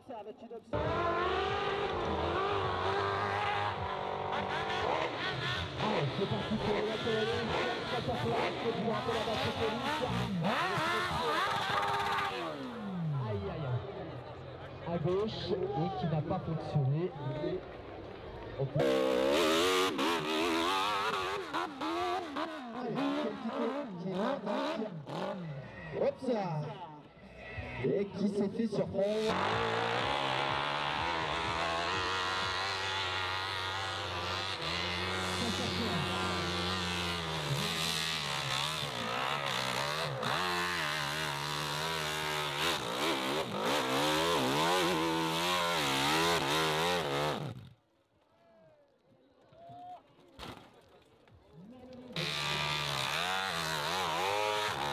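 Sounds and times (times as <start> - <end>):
dirt bike engine revving: 0.7 - 13.2, 18.8 - 25.8, 28.9 - 47.8, 52.1 - 54.9.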